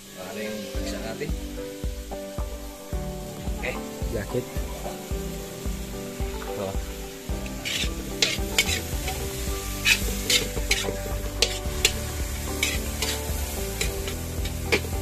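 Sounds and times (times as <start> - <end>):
food sizzling: 0.0 - 15.0
spatula scraping a pan: 7.6 - 15.0.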